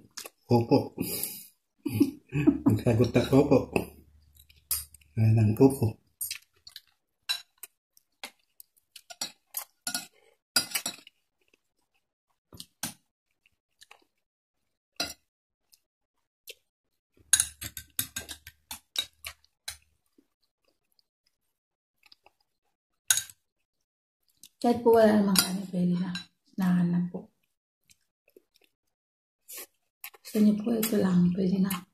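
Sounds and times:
chewing: 6.2s - 16.7s, 17.6s - 24.6s, 27.3s - 30.4s
cutlery clinking on a plate: 17.3s - 19.2s.

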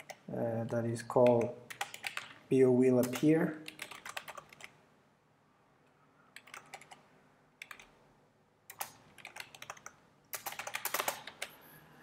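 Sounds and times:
typing on computer keyboard: 0.0s - 0.2s, 1.2s - 2.4s, 3.0s - 4.8s, 6.4s - 8.0s, 8.7s - 11.6s.

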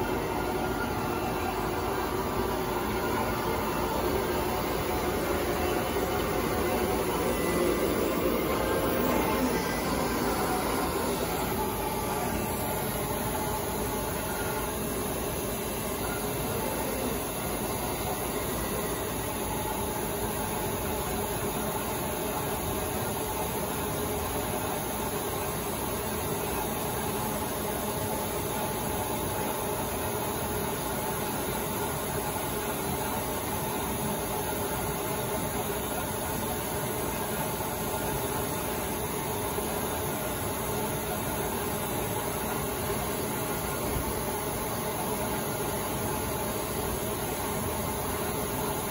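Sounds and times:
vacuum pump rushing: 0.0s - 19.0s.

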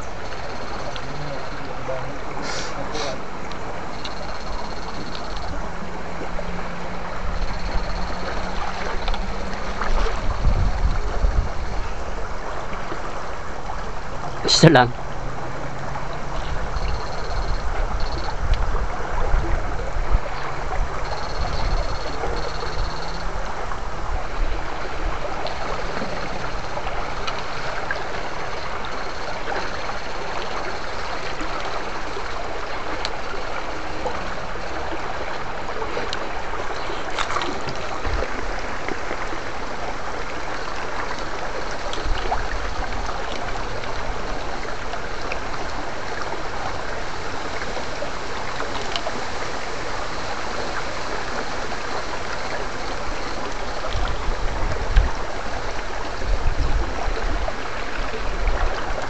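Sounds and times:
stream rushing over stones: 0.0s - 59.0s.

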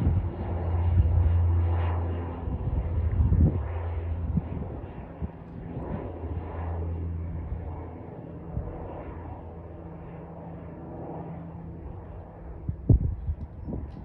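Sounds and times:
airplane engine: 0.0s - 14.0s.

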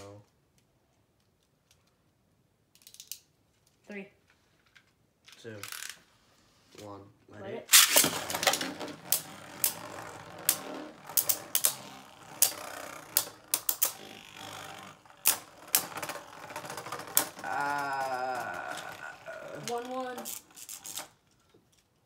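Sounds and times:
spinning tops clacking: 7.7s - 17.7s
spinning tops whirring: 7.7s - 21.2s
child's voice: 17.5s - 20.3s.

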